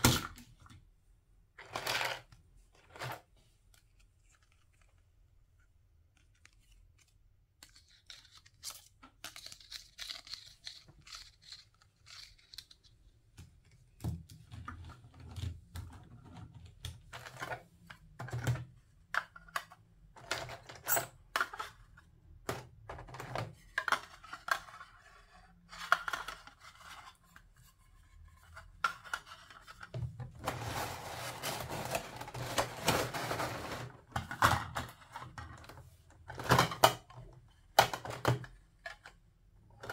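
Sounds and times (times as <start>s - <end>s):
plastic pieces clicking together: 7.6s - 12.9s.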